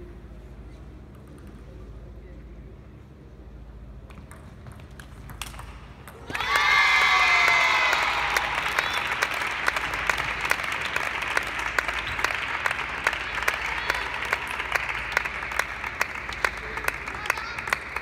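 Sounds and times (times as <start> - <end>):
spectators applauding: 6.3 - 18.0.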